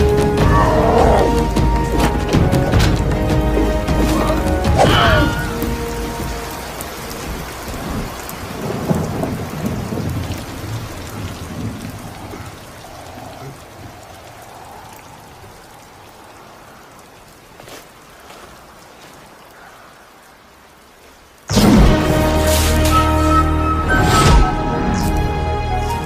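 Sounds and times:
rain falling steadily: 0:00.0 - 0:26.0
rolling thunder: 0:07.2 - 0:13.0.

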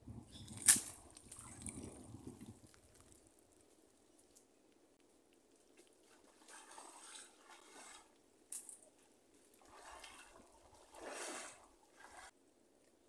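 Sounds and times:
wet rustling and dripping net: 0:00.4 - 0:04.4.

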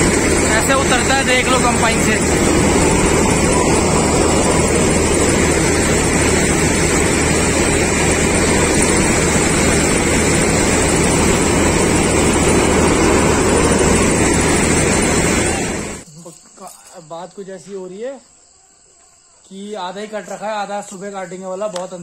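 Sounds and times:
auger unloading grain: 0:00.0 - 0:16.0
combine harvester engine and threshing: 0:00.0 - 0:16.1.

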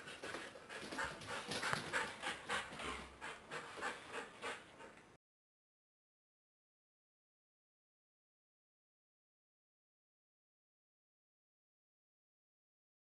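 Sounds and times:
dog panting: 0:00.0 - 0:05.2.

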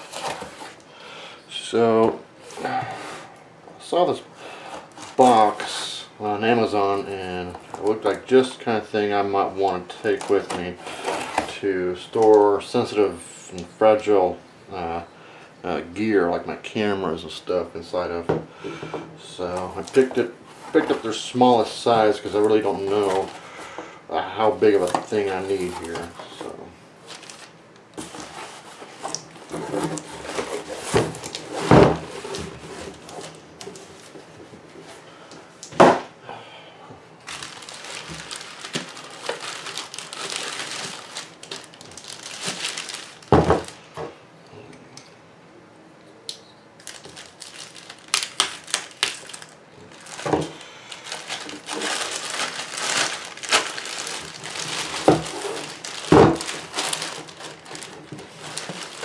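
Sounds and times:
plastic bag crinkling: 0:19.6 - 0:23.5, 0:24.4 - 0:34.0, 0:37.2 - 0:43.9, 0:46.8 - 0:59.0.

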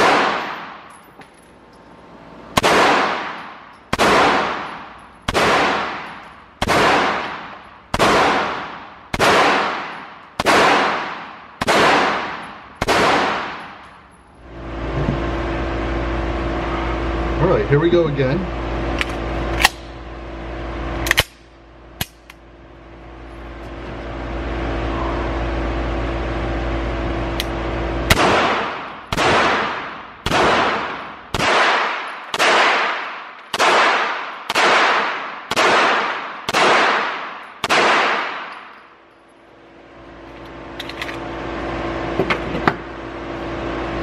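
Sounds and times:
pistol shots echoing indoors: 0:28.1 - 0:38.6.

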